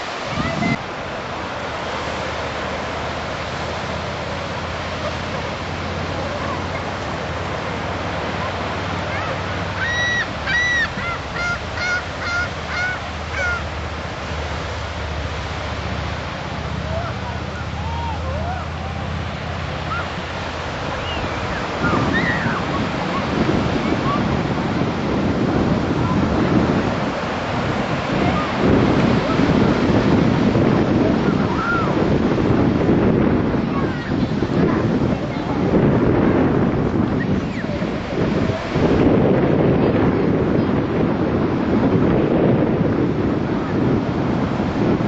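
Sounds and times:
small waves breaking on beach: 0.0 - 45.0
surf washing: 0.0 - 45.0
wind buffeting microphone: 0.0 - 45.0
gull calling: 9.1 - 13.8, 19.8 - 20.2, 20.9 - 23.3.

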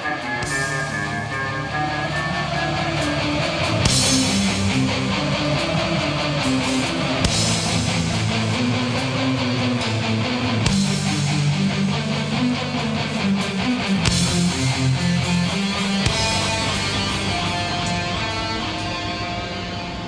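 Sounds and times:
heavy rock music: 0.0 - 20.0.

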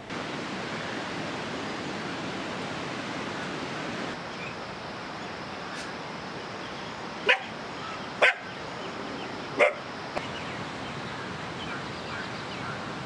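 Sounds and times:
background hiss: 0.0 - 13.0
dog barking: 7.3 - 7.5, 8.2 - 8.5, 9.6 - 9.8.

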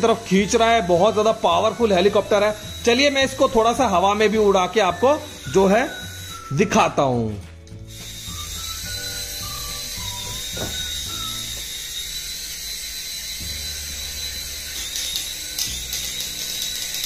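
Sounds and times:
toy helicopter rotor whine: 0.0 - 6.8, 7.8 - 17.0.

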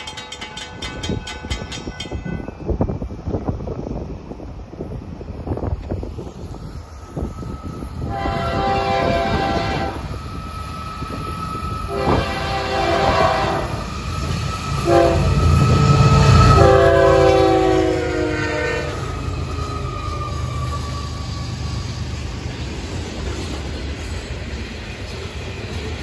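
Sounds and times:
train rolling noise: 0.0 - 26.0
locomotive air horn: 8.0 - 10.2, 11.8 - 14.0, 14.6 - 21.3.

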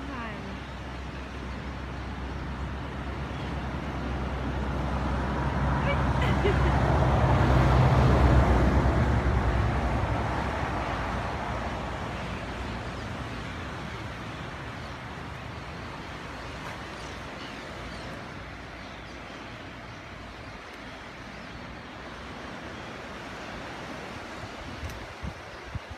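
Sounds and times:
vehicle passing by: 3.5 - 14.2.

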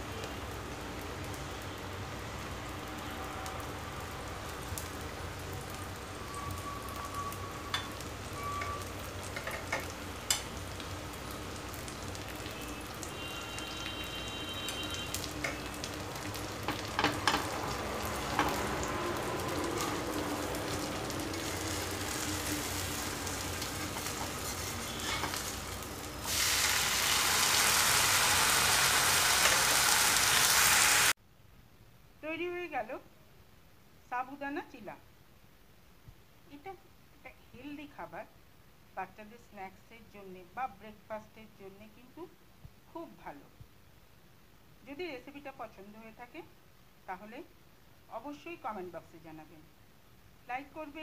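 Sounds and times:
pancake sizzling in oil: 0.1 - 31.2
spatula scraping a pan: 23.8 - 25.6.

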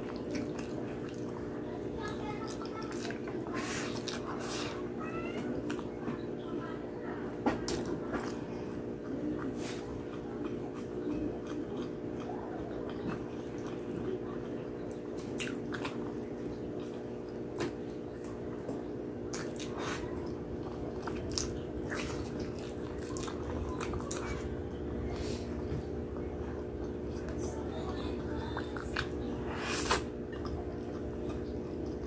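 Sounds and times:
steady low hum: 0.0 - 32.0
close biting and chewing: 19.3 - 25.6.

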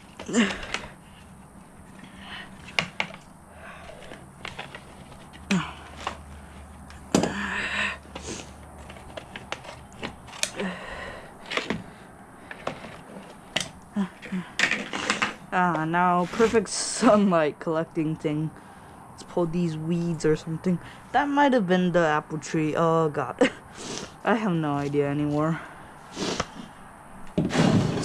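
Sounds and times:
low steady hum: 0.0 - 28.0
rustling scrape: 3.7 - 6.8, 14.7 - 16.8, 27.4 - 28.0.

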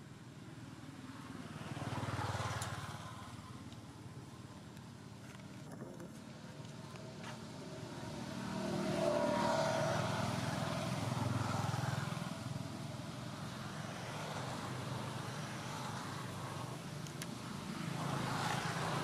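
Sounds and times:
vehicle engine passing by: 7.2 - 12.6.

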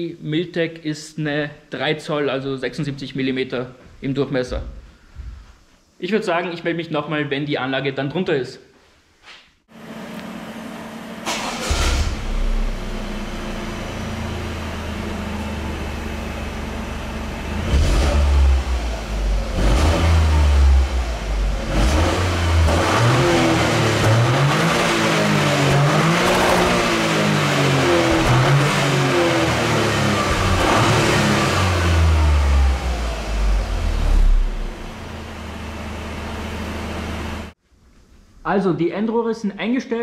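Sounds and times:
car engine starting: 9.8 - 37.6
car engine idling: 10.5 - 21.8, 23.9 - 37.5
car engine revving: 11.2 - 37.6.

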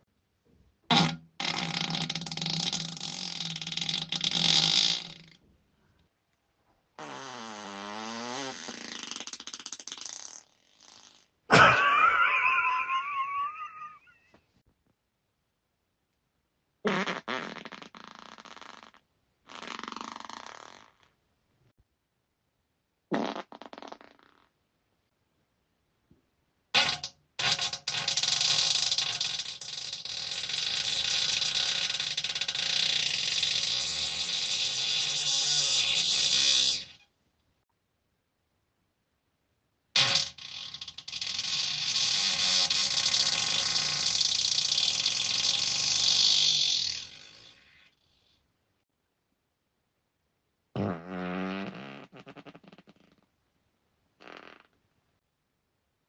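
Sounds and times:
farts: 0.9 - 5.4, 7.0 - 11.8, 16.8 - 21.2, 23.1 - 24.6, 26.7 - 37.1, 39.9 - 48.3, 50.8 - 53.4, 54.2 - 54.8.

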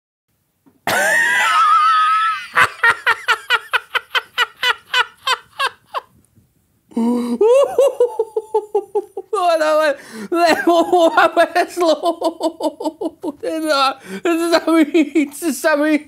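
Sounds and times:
man laughing hard: 0.9 - 6.1, 7.4 - 9.4.

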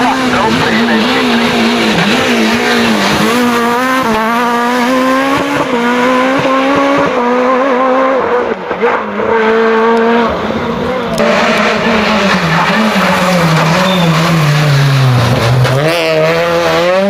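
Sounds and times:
rally car engine accelerating: 0.0 - 17.0.

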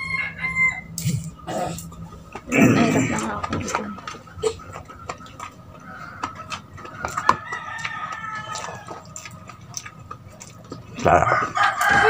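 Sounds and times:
rooster crowing: 0.0 - 1.0, 5.8 - 9.4, 11.1 - 12.0
sharp clicks of eating: 0.9 - 12.0.

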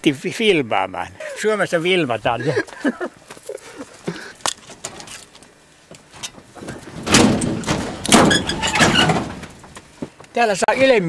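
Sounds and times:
scraping and knocking: 6.1 - 10.1
knocks of ladder climbing: 6.2 - 10.2.

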